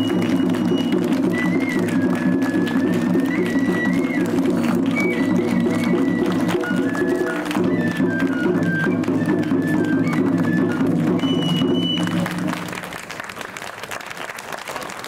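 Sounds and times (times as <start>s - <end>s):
audience applause: 0.0s - 15.0s
traditional stage music: 0.0s - 15.0s.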